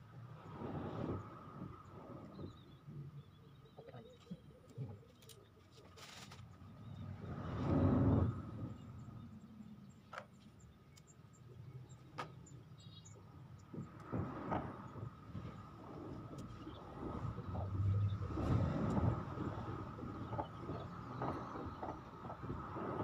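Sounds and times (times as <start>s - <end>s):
vehicle passing: 16.9s - 22.7s.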